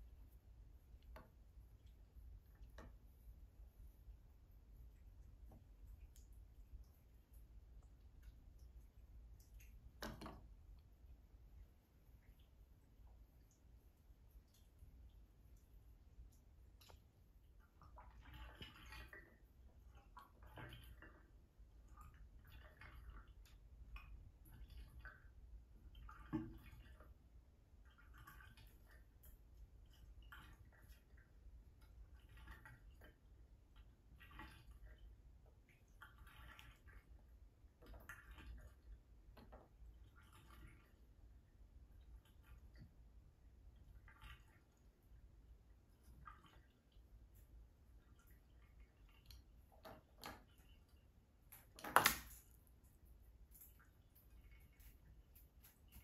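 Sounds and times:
faint irregular ticks: 0.0 - 44.7
toy splashing into bathtub: 51.6 - 52.6.

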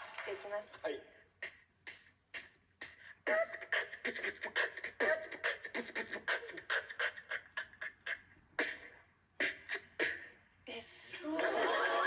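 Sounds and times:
woman beatboxing: 1.4 - 10.3.

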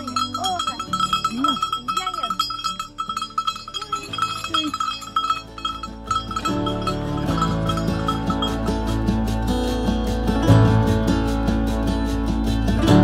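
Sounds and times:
sheep bell clanking: 0.0 - 10.0.

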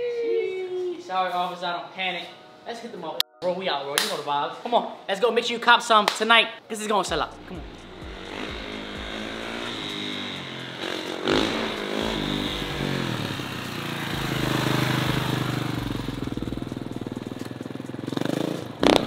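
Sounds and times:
dirt bike engine revving: 7.4 - 19.0.

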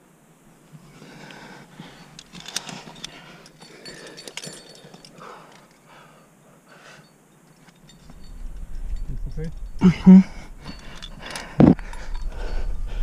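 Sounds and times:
climber breathing: 0.7 - 8.8, 9.8 - 13.0
carabiners clinking: 0.9 - 6.3, 6.9 - 12.8.

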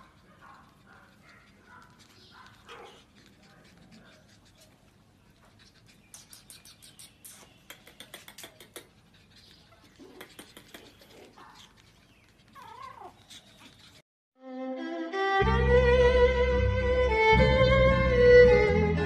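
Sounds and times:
puppies crying: 0.0 - 14.0
puppies yipping: 0.0 - 14.0.

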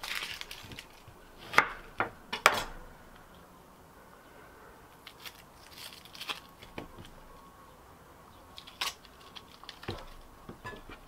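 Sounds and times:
onion skin crackling: 0.0 - 2.6, 4.9 - 7.3, 8.4 - 11.0.

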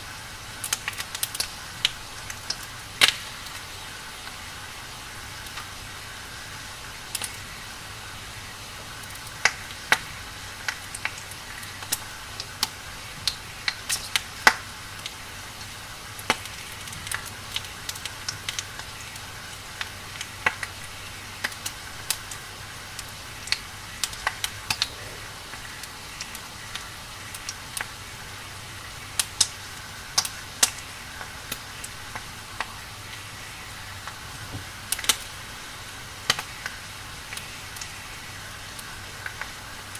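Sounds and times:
wood fire crackling: 0.2 - 39.9.

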